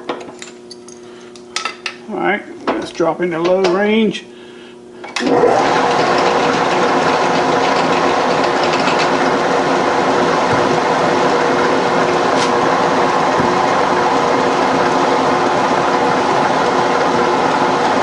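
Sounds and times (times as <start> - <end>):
milling machine gear whine: 5.2 - 18.0.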